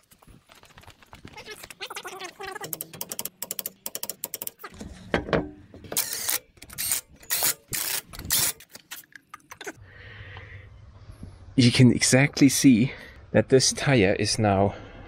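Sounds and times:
rapid clicking and rattling: 0.5s - 4.7s.

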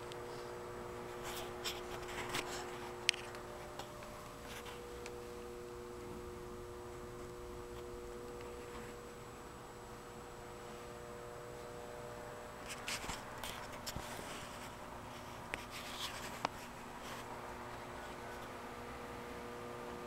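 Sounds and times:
steady electrical hum: 0.0s - 20.0s
scratchy rustling and rubbing: 1.1s - 3.8s, 12.6s - 17.4s.

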